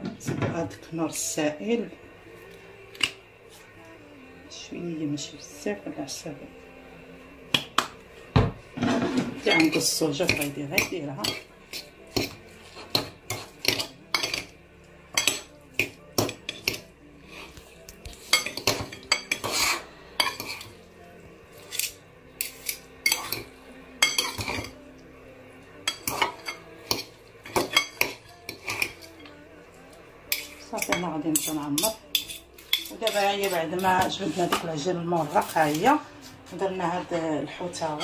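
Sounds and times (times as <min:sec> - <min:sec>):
forks clinking on ceramic bowl: 0:09.5 - 0:14.5, 0:21.7 - 0:24.8, 0:30.3 - 0:34.6.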